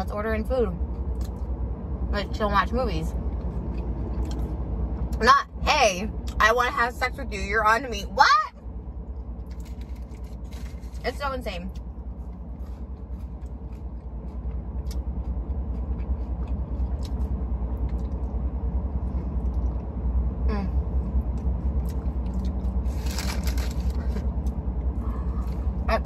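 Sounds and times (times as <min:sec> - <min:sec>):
low hum inside car: 0:00.0 - 0:26.0
person chewing: 0:03.3 - 0:04.6, 0:11.7 - 0:18.4, 0:21.2 - 0:25.7.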